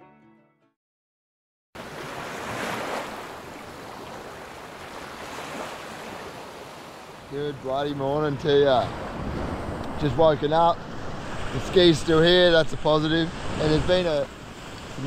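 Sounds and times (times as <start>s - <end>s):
background music: 0.0s - 0.8s
surf rushing: 1.8s - 15.0s.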